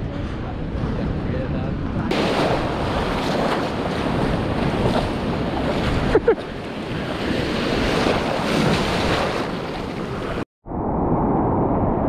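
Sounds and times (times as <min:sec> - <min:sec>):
wind buffeting microphone: 0:00.0 - 0:12.0
ocean surf rushing: 0:02.1 - 0:10.4.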